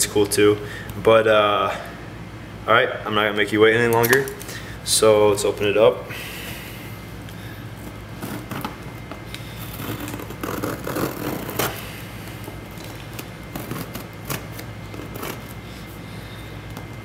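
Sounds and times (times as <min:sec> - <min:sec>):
scissors cutting packing tape: 0:08.2 - 0:11.8, 0:12.7 - 0:15.6.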